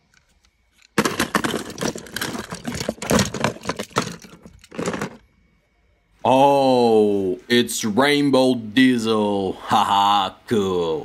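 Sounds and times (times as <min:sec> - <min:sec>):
plastic toy trains clattering: 0:00.0 - 0:05.3.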